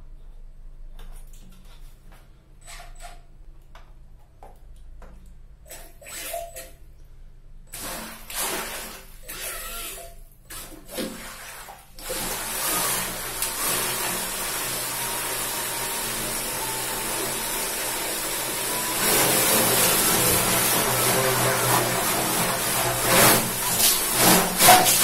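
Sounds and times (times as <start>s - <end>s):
thruster churning water: 18.5s - 25.0s.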